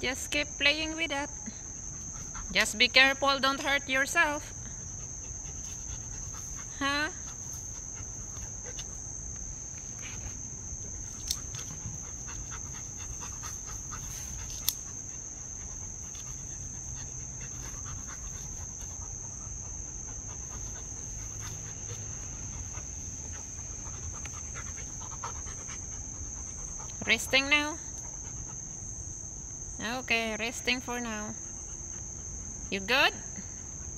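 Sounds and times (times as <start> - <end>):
crickets droning: 0.0 - 33.9
dog panting: 1.7 - 3.2, 4.7 - 9.1, 9.9 - 28.8, 31.3 - 32.7.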